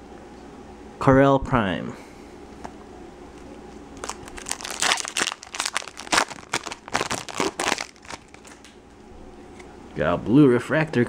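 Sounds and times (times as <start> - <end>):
foil wrapper crinkling: 4.0 - 8.7.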